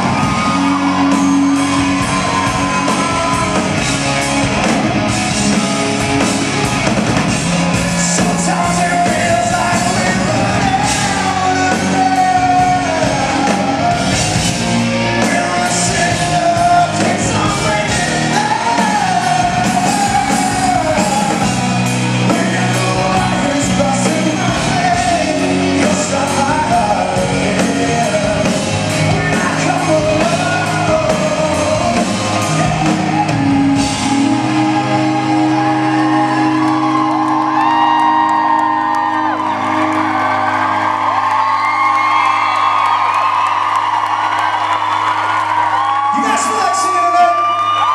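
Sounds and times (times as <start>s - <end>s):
live rock band playing: 0.0s - 47.9s
man singing: 8.0s - 32.7s.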